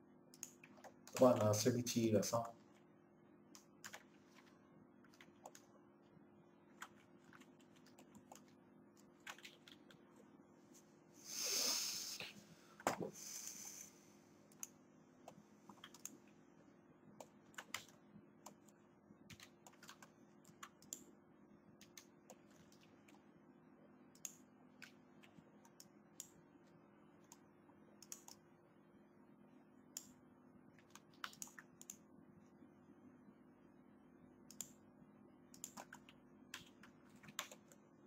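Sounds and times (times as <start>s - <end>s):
faint steady hum: 0.0s - 38.0s
mouse clicks: 0.3s - 1.4s, 17.2s - 21.1s, 24.2s - 26.4s, 28.0s - 28.4s, 30.8s - 32.0s, 34.5s - 34.8s, 35.5s - 37.8s
keyboard keystrokes: 17.2s - 18.0s, 30.8s - 32.0s, 35.6s - 37.8s.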